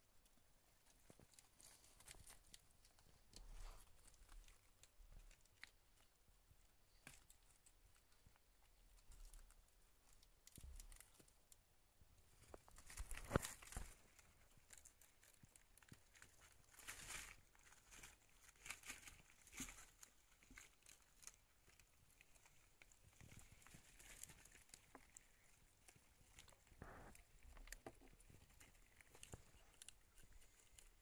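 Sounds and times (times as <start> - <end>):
hamsters rustling in bedding: 0.6 - 6.0, 12.2 - 31.0.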